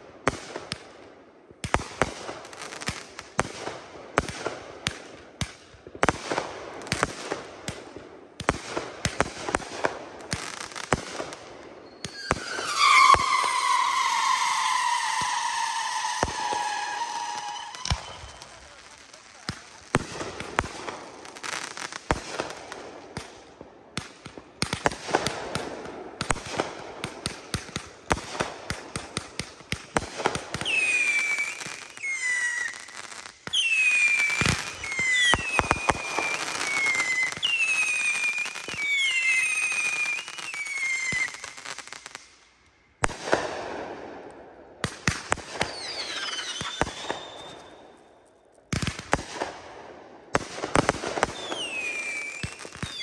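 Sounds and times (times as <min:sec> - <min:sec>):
fireworks pops and bangs: 0:00.2 - 0:53.0
falling firework whistles: 0:10.8 - 0:19.7, 0:30.5 - 0:42.1, 0:45.4 - 0:48.1, 0:50.7 - 0:53.0.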